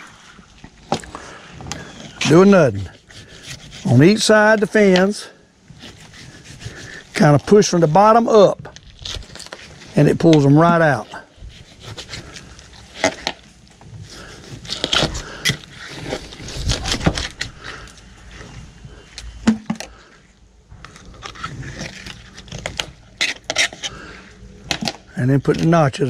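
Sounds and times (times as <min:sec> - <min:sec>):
clicks and knocks handling fish: 0:00.0 - 0:02.2
knife scraping on table: 0:23.2 - 0:24.0.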